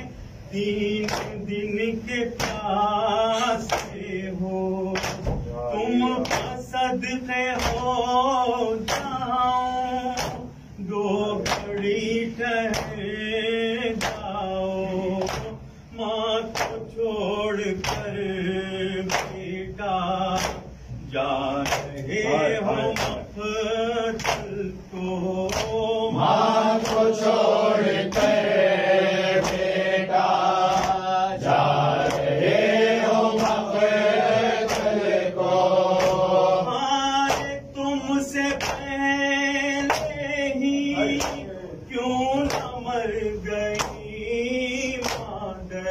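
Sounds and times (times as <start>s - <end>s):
men chanting in unison: 0.0s - 45.9s
hands slapping chests: 1.0s - 1.4s, 3.6s - 3.9s, 4.9s - 5.4s, 15.2s - 15.6s, 20.4s - 20.7s, 21.6s - 22.1s, 22.9s - 23.2s, 24.2s - 24.5s, 25.5s - 25.8s, 26.8s - 27.3s, 29.4s - 29.7s, 30.6s - 31.0s, 32.0s - 32.3s, 34.4s - 35.0s, 36.0s - 36.3s, 37.3s - 37.6s.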